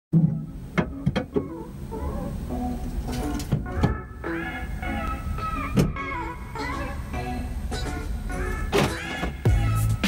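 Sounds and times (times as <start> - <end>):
background music with sharp hits: 8.6 - 10.0.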